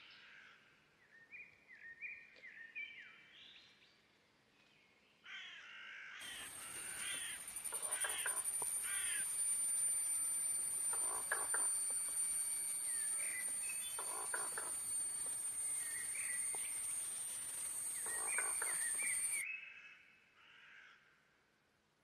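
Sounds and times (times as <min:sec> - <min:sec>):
harsh bird calls: 0:06.2 - 0:19.4
steady high-pitched whine: 0:06.2 - 0:19.4
bird chirps: 0:06.2 - 0:19.7.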